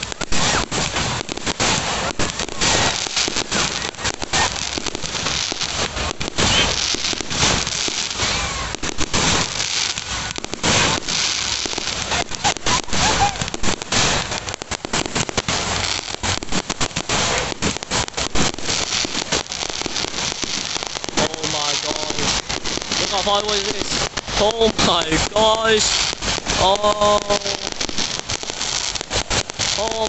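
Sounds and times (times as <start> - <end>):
fireworks bangs and crackling pops: 0.0 - 30.0.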